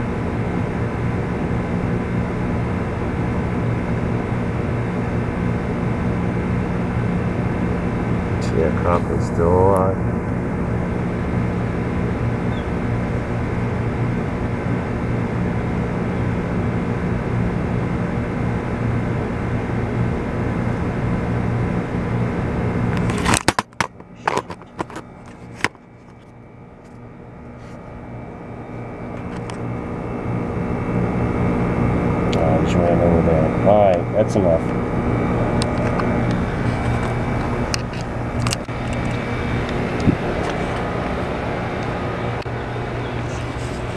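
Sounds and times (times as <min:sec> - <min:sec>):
low machine hum with tones: 0:00.0 - 0:43.9.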